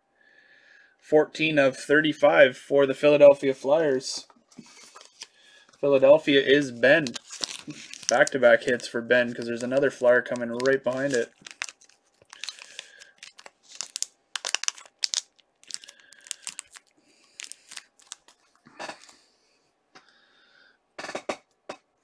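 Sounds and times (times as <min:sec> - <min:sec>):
plastic sleeve crinkling: 0:04.5 - 0:19.2.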